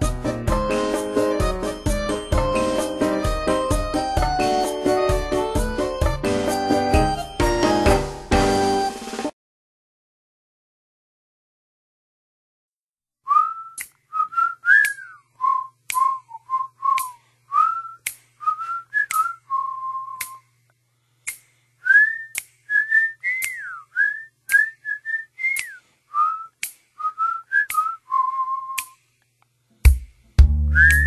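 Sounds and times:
person whistling a tune: 0:13.3 - 0:20.5, 0:21.8 - 0:29.0, 0:30.6 - 0:31.0.

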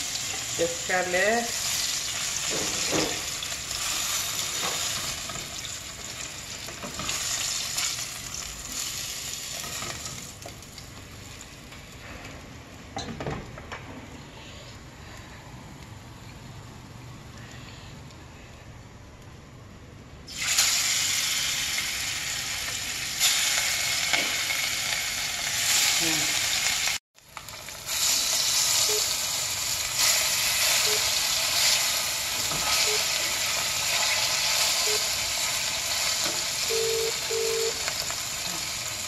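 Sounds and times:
fish sizzling in hot oil: 0:00.0 - 0:10.5, 0:20.3 - 0:39.0.

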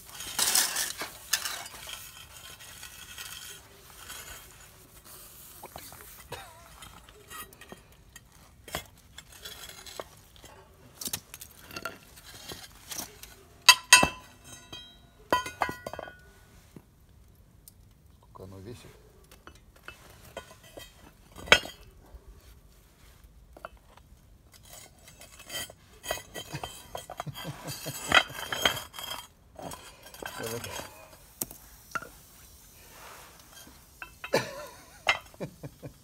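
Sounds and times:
metal clinking and scraping: 0:00.0 - 0:16.8, 0:18.7 - 0:36.0
sharp metal clanks: 0:13.6 - 0:16.2.

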